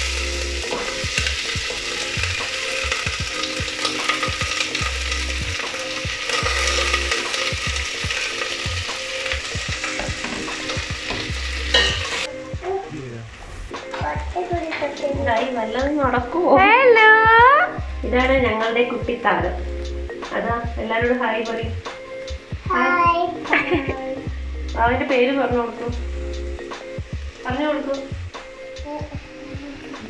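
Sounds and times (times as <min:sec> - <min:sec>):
onions sizzling in a pan: 0:00.0 - 0:13.1, 0:13.8 - 0:17.0, 0:25.1 - 0:30.0.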